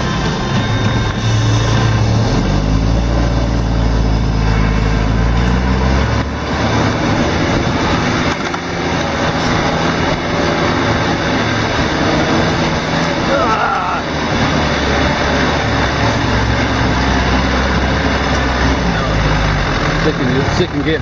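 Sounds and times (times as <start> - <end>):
vehicle engine revving: 0.0 - 21.0
vehicle rolling over dirt track: 4.3 - 21.0.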